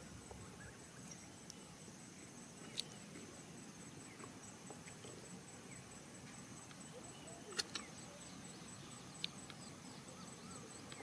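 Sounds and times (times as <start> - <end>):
insect trilling: 0.0 - 11.0.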